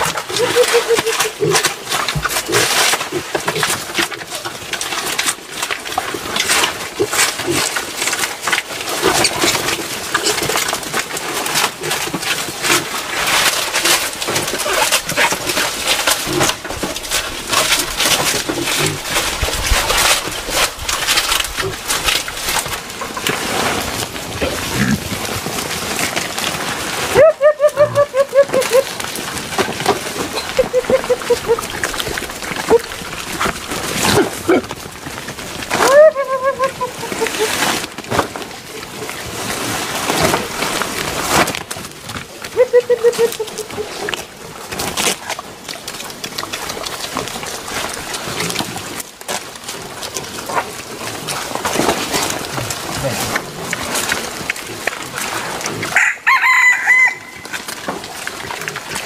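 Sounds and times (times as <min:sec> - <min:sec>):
boar calls: 0:00.0 - 0:04.6, 0:27.0 - 0:29.1, 0:30.2 - 0:34.8, 0:35.7 - 0:37.8, 0:42.5 - 0:44.3
boars chewing leaves: 0:00.0 - 0:59.0.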